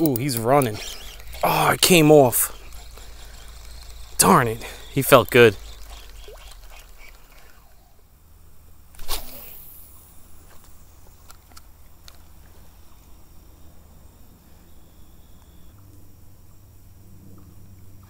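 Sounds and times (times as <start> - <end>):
faint reel ticks: 0.0 - 7.9
fishing rod swishing: 0.1 - 7.9, 9.0 - 9.7.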